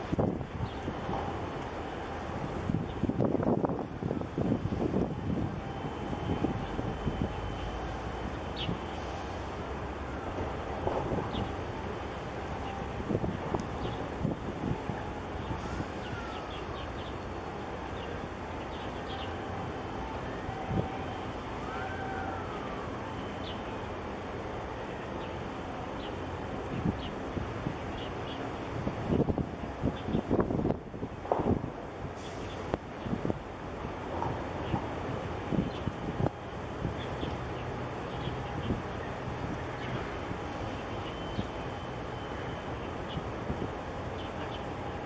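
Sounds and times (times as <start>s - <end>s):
harbour noise: 0.0s - 45.0s
wind: 0.0s - 45.0s.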